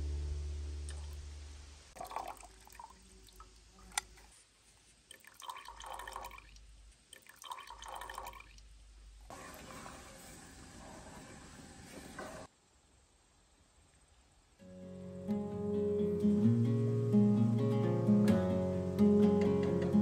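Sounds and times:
juice dripping into metal pot: 2.0s - 4.4s, 5.0s - 8.7s.

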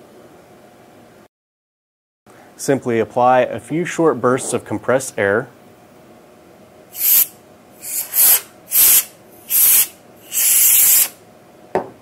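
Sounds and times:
compressed air bursts: 6.9s - 11.2s.

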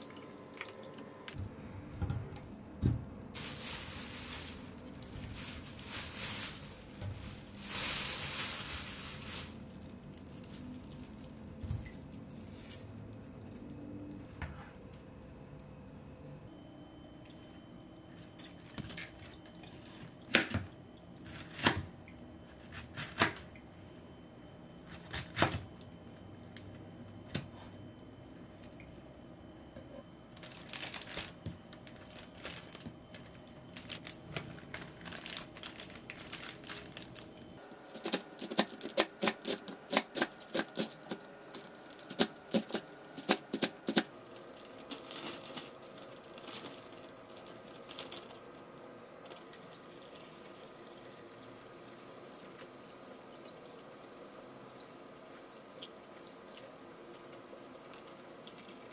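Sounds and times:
plastic bag rustling: 3.3s - 14.4s, 30.3s - 48.6s.

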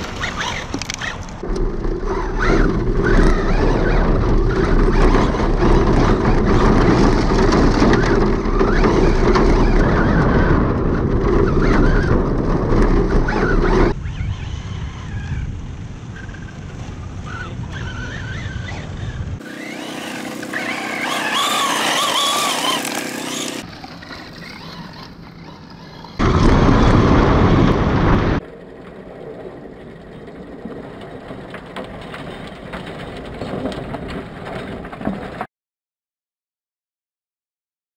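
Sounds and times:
electric truck motor whining: 0.0s - 10.8s, 16.2s - 26.2s
loud rush of noise: 26.2s - 28.4s.

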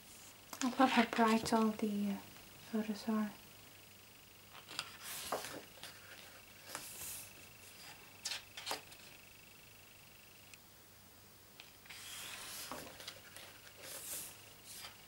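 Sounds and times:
paper page swishing: 11.9s - 15.0s.

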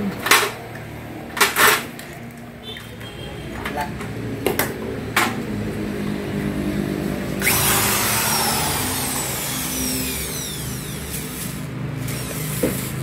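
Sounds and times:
drill bit cutting harsh hiss: 7.4s - 12.6s
electric drill motor hum: 7.4s - 13.0s.

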